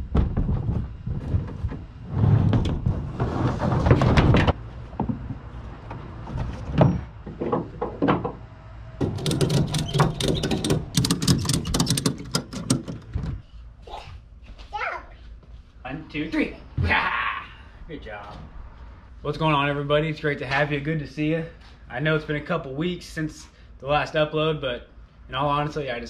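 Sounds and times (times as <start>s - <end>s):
irregular knocks and thuds: 0.0s - 13.5s.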